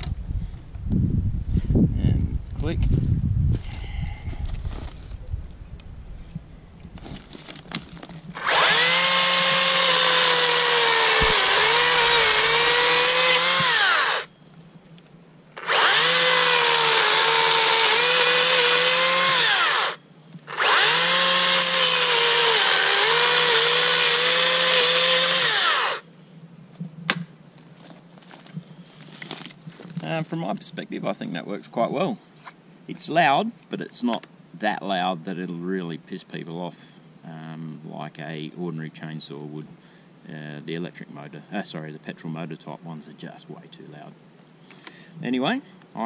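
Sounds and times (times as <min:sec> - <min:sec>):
electric chainsaw cutting branch: 0:08.4 - 0:14.3, 0:15.6 - 0:26.0.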